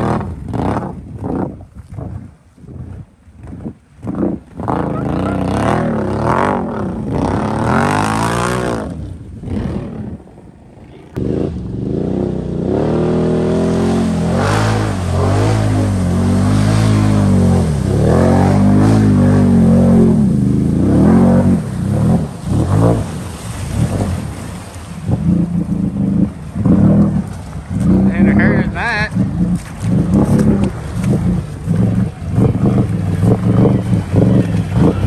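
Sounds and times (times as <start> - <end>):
atv engine revving: 0.0 - 1.5, 4.0 - 10.4, 11.1 - 35.0
water and mud splashing: 0.0 - 10.4, 11.1 - 35.0.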